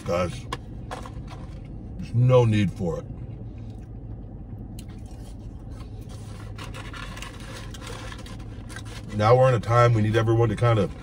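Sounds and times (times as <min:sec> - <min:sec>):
low hum in car cabin: 0:00.0 - 0:11.0
man chewing: 0:03.6 - 0:09.1.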